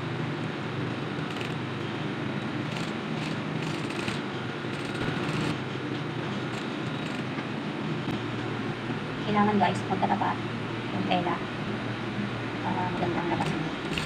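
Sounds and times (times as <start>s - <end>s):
sewing machine running: 2.7s - 5.6s, 13.4s - 14.0s.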